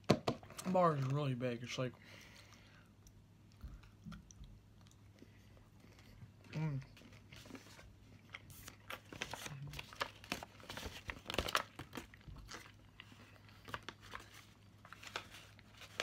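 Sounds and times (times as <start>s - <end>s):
paper wrapper crinkling: 7.0s - 16.0s.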